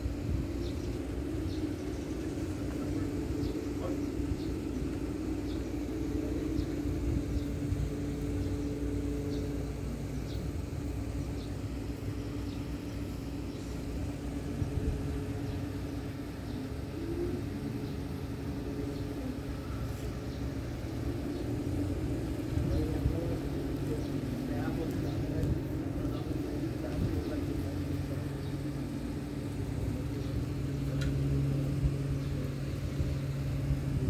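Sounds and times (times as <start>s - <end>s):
low machine hum: 0.0s - 34.0s.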